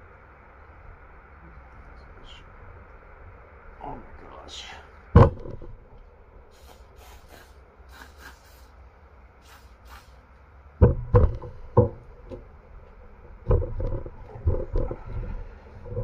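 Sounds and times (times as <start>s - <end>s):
aerosol can hissing: 6.5s - 8.7s, 9.4s - 10.2s.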